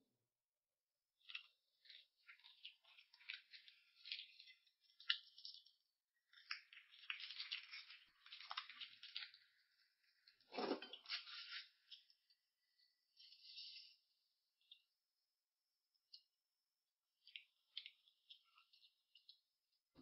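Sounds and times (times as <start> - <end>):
crackling and rustling: 1.3 - 12.3.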